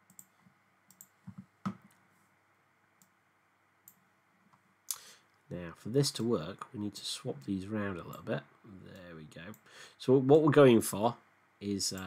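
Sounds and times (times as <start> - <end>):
computer mouse clicking: 0.1 - 0.3, 0.9 - 2.0.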